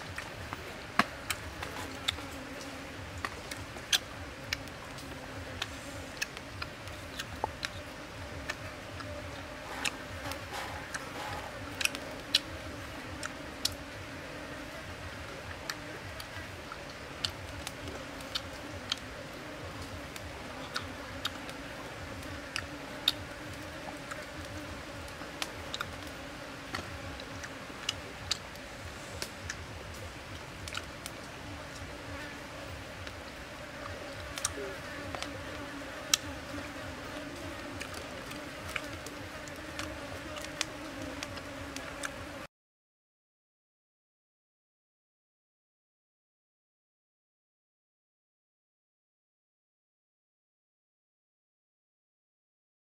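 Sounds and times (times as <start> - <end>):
chewing and lip-smacking: 30.6 - 30.9.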